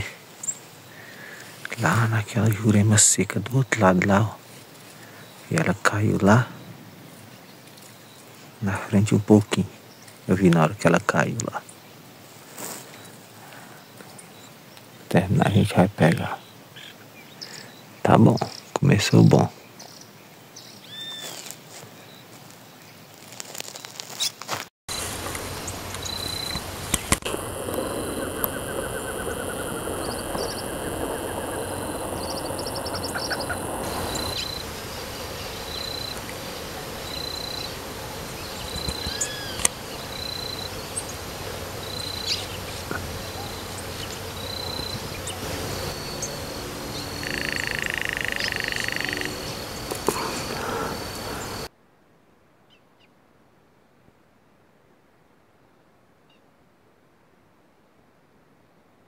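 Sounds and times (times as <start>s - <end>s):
bird-like calls: 24.9s - 51.7s.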